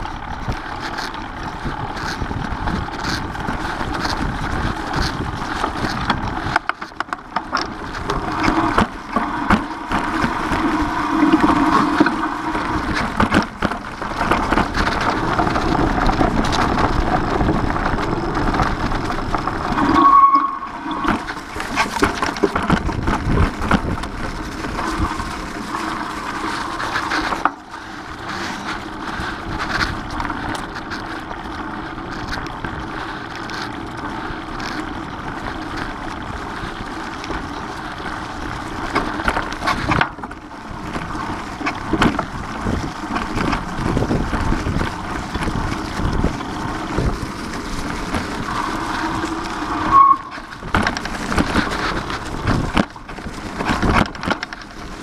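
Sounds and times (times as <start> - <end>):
wind rushing on microphone: 0.0 - 31.2, 35.3 - 55.0
bike knocking and rattling: 0.0 - 55.0
tyres rolling over dry leaves: 0.0 - 55.0
short squeak: 19.8 - 21.4, 49.8 - 50.5.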